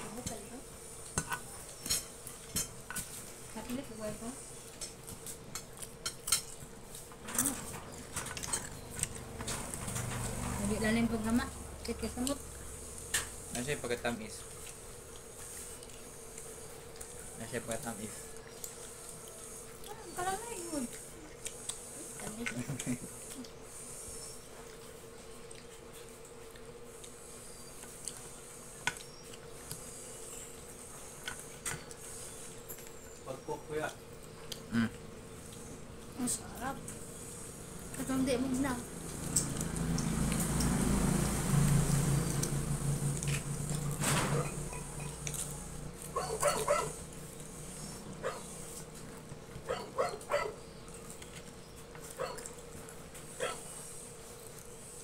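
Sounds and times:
dog barking in sharp yaps: 46.1s - 47.0s, 49.7s - 50.6s.

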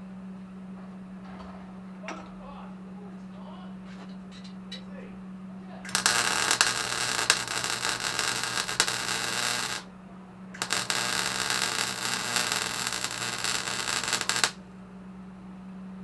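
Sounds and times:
steady low hum: 0.0s - 16.0s
arc welding crackling hiss: 5.9s - 9.9s, 10.6s - 14.6s.

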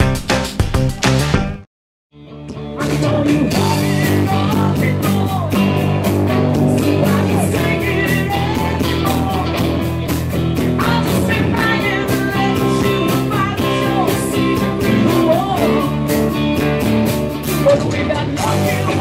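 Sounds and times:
steady drum beat: 0.0s - 1.6s
bass guitar: 0.0s - 19.0s
electric guitars: 2.2s - 19.0s
woman singing lead: 2.6s - 19.0s.

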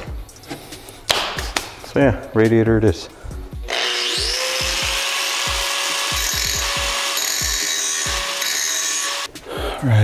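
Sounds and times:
angle grinder grinding metal: 3.7s - 9.3s.

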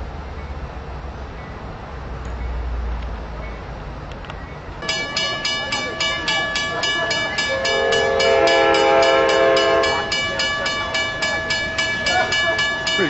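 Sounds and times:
bell ringing: 4.8s - 13.0s
train horn chord: 6.8s - 11.2s.

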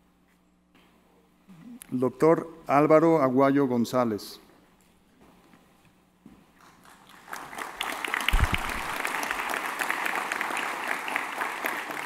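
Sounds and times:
audience applauding in a hall: 6.6s - 12.0s.

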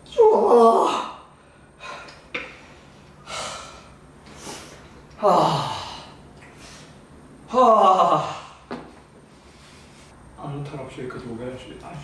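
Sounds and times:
man exhaling: 1.4s - 7.0s
man sighing: 5.2s - 6.2s.

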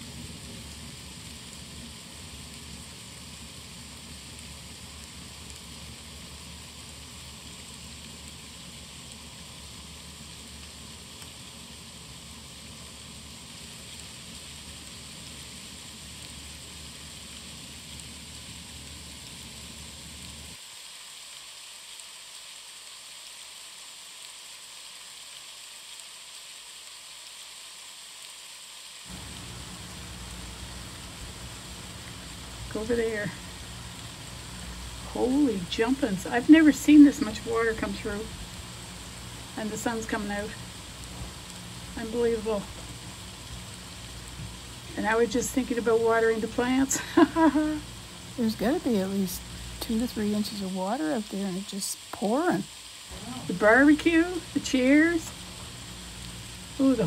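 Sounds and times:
heavy rain pouring: 0.0s - 22.1s, 28.8s - 57.0s
low rumble: 29.1s - 46.8s.

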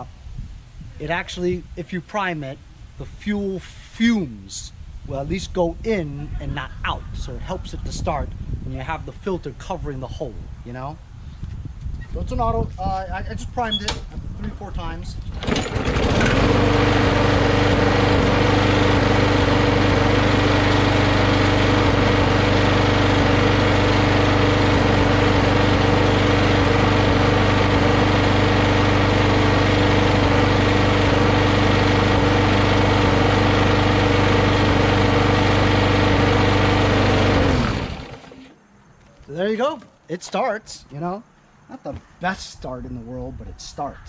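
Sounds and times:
lawn mower engine running: 15.3s - 38.6s.

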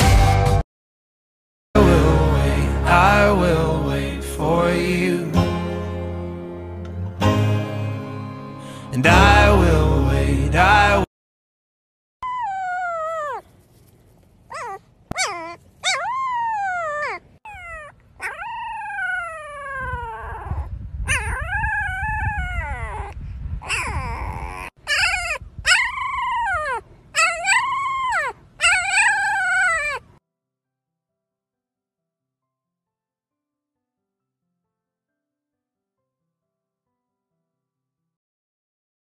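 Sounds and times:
dog whining: 12.2s - 13.5s, 14.5s - 30.2s
soft low rustling: 13.2s - 15.8s.

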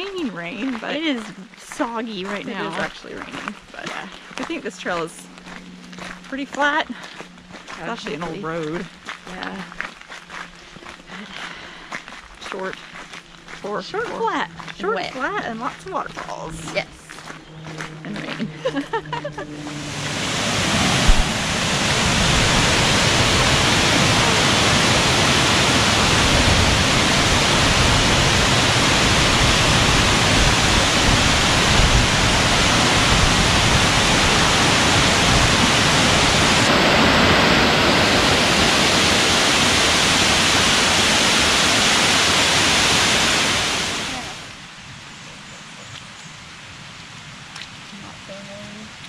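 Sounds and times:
waterfall rushing over rocks: 19.8s - 45.0s.

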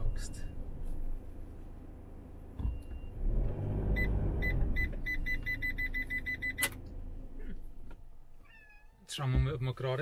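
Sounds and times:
parking sensor beeps: 0.0s - 0.6s, 2.6s - 6.8s.

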